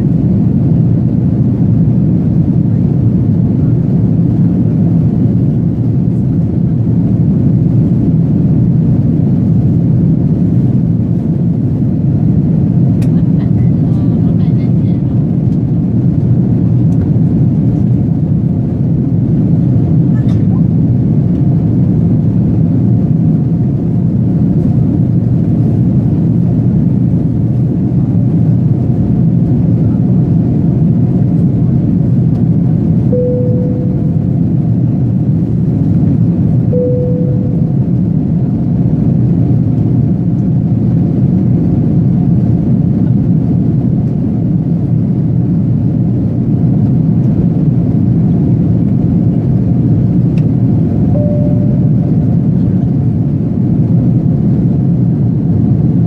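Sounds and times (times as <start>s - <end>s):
jet airliner cabin noise: 0.0s - 56.0s
single-note chime: 33.2s - 34.3s, 36.8s - 37.9s, 51.1s - 52.1s.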